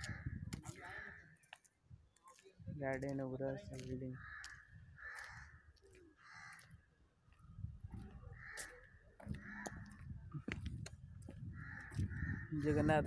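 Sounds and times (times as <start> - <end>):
crows cawing: 0.0 - 1.4, 4.2 - 6.8, 8.3 - 10.1, 11.5 - 12.9
low microphone rumble: 9.2 - 13.0.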